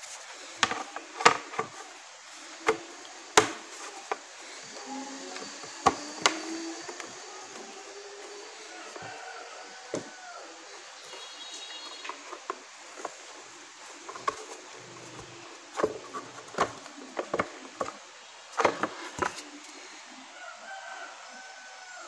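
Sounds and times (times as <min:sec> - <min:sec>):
plastic knocks and clicks: 0:00.6 - 0:01.9, 0:02.6 - 0:04.2, 0:05.3 - 0:07.7, 0:14.0 - 0:18.0, 0:18.6 - 0:19.4.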